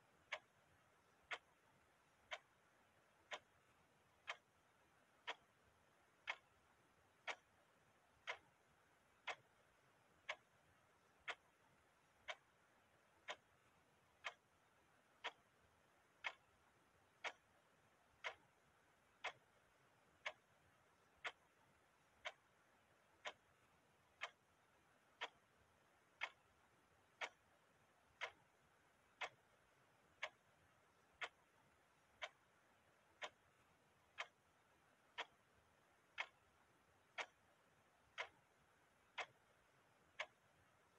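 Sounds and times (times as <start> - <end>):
clock ticking: 0.0 - 40.9.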